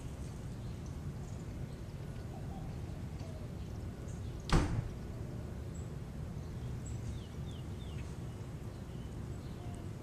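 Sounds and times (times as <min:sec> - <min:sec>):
low outdoor rumble: 0:00.0 - 0:10.0.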